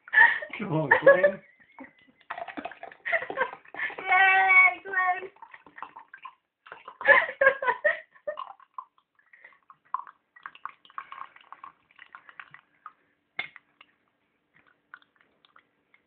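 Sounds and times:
liquid trickling into a glass: 0:02.0 - 0:04.1, 0:05.3 - 0:07.6, 0:08.2 - 0:13.6.

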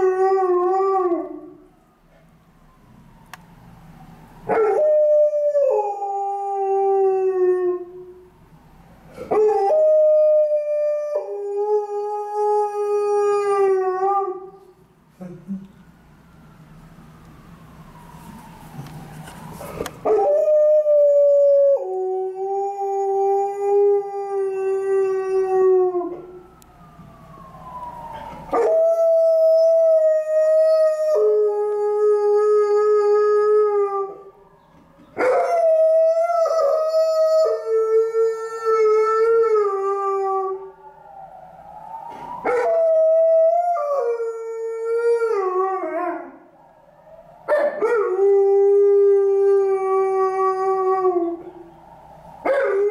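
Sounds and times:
dog howling: 0:28.2 - 0:34.2, 0:42.4 - 0:46.4, 0:52.4 - 0:52.9.

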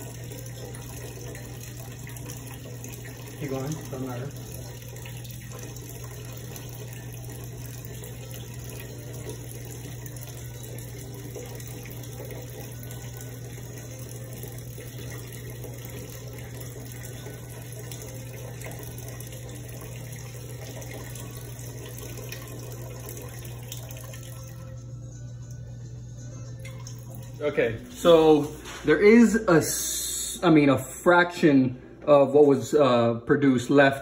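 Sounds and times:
liquid trickling into a pot: 0:00.0 - 0:24.9, 0:26.6 - 0:28.8.

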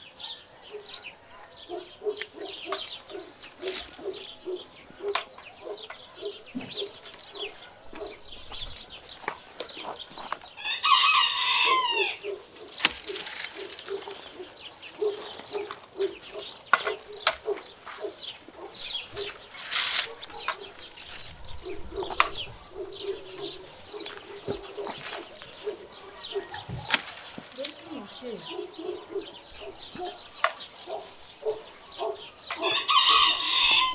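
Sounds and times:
small birds chirping: 0:00.0 - 0:33.9
loppers snapping branches: 0:02.2 - 0:04.2, 0:09.0 - 0:10.5, 0:12.6 - 0:21.4, 0:26.7 - 0:28.0, 0:30.4 - 0:31.1
rooster crowing: 0:10.6 - 0:12.4, 0:26.0 - 0:26.8, 0:32.5 - 0:33.9.

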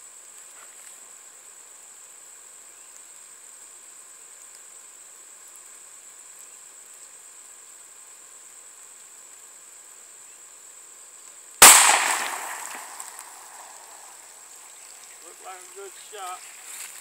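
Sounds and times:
pistol shot: 0:11.6 - 0:14.2.

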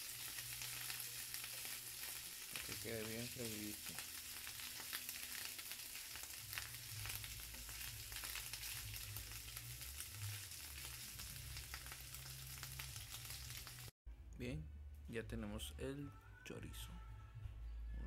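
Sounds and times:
chorizo sizzling in hot oil: 0:00.0 - 0:14.0.

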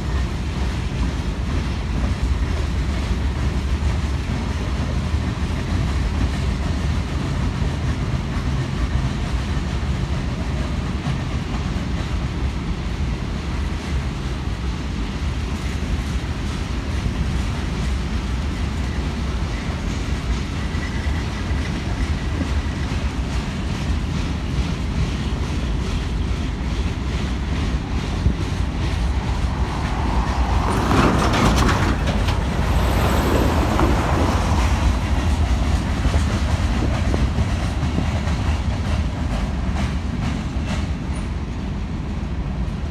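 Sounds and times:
freight train wheels rolling on rails: 0:00.0 - 0:42.9.

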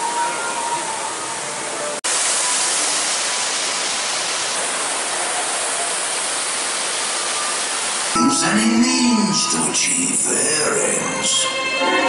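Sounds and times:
steady rushing hiss: 0:01.8 - 0:08.2.

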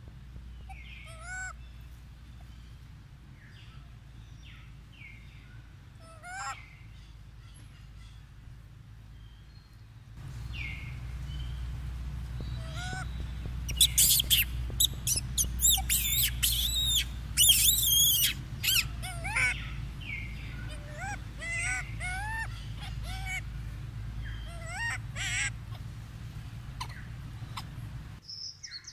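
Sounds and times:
monkey squeaky calls: 0:00.7 - 0:01.6, 0:06.0 - 0:06.6, 0:12.4 - 0:23.5, 0:24.2 - 0:25.9, 0:26.6 - 0:27.9.

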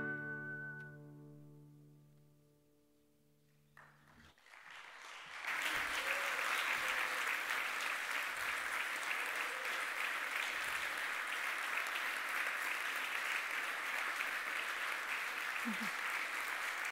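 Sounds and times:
guitar chord ringing: 0:00.0 - 0:02.8
audience applauding: 0:03.7 - 0:16.9.

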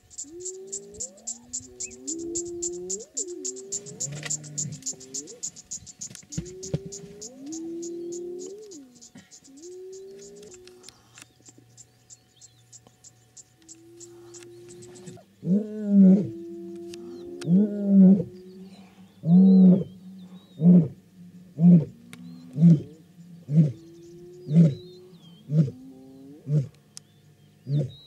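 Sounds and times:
lioness grunting calls: 0:00.3 - 0:05.6, 0:06.3 - 0:11.0
lioness roaring: 0:03.8 - 0:04.9, 0:14.3 - 0:21.0.

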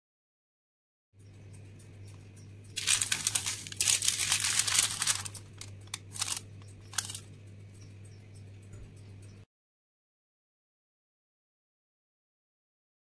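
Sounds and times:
steady low hum: 0:01.2 - 0:09.5
baking paper crinkling: 0:02.8 - 0:07.2.

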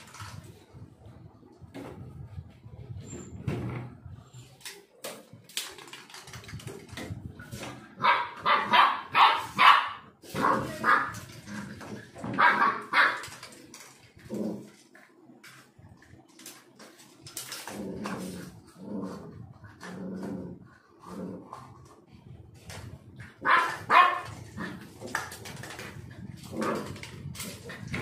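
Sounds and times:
puppy barking: 0:08.0 - 0:11.1, 0:12.4 - 0:13.2, 0:23.4 - 0:24.4.

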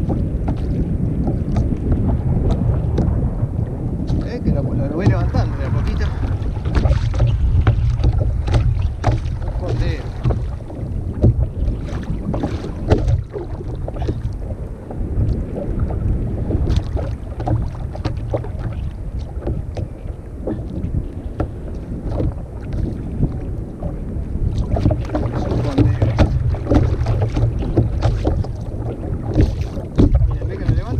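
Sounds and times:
water splashes: 0:00.0 - 0:30.9
wind rumbling on microphone: 0:00.0 - 0:30.9
knocks against kayak: 0:04.0 - 0:14.4, 0:16.6 - 0:30.9.

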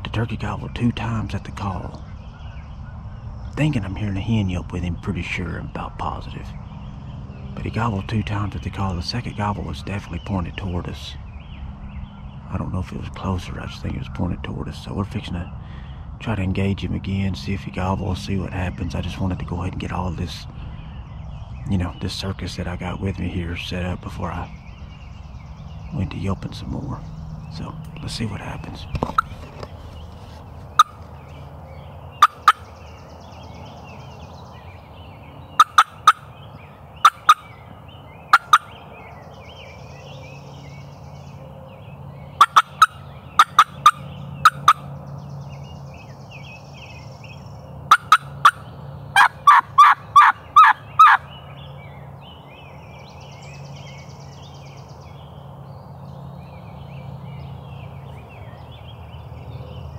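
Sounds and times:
low steady hum: 0:00.0 - 0:59.9
small birds chirping faintly: 0:00.0 - 0:59.9
turkey call clucks: 0:29.0 - 0:29.7, 0:30.7 - 0:31.1, 0:32.2 - 0:32.7, 0:35.6 - 0:36.3, 0:37.0 - 0:37.6, 0:38.3 - 0:38.8, 0:42.4 - 0:44.9, 0:47.9 - 0:51.3
turkey call yelps: 0:30.7 - 0:31.0, 0:32.2 - 0:32.7, 0:35.6 - 0:36.3, 0:37.0 - 0:37.6, 0:38.3 - 0:38.8, 0:42.4 - 0:44.9, 0:47.9 - 0:51.3.

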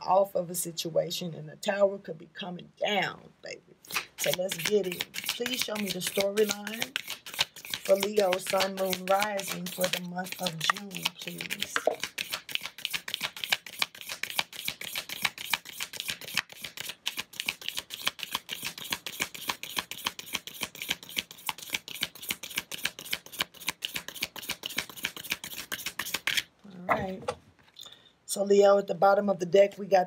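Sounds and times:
cards being shuffled: 0:03.8 - 0:27.5.

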